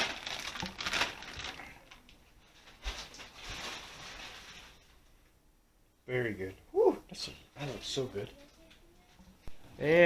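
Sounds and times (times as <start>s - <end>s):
foil trays crinkling: 0.0s - 5.0s.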